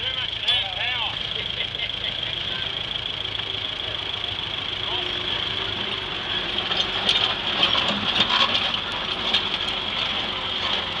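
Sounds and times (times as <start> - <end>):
tractor engine idling: 0.0 - 11.0
steel tracks clanking: 4.1 - 11.0.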